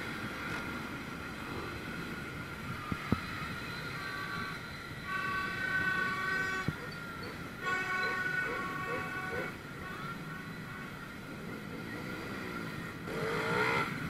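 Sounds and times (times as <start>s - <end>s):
motorbike engines rumbling: 0.0s - 14.0s
horn: 13.1s - 14.0s.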